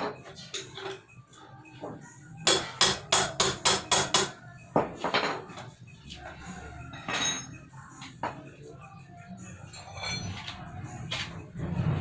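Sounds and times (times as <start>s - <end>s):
hammer striking metal: 2.4s - 4.4s.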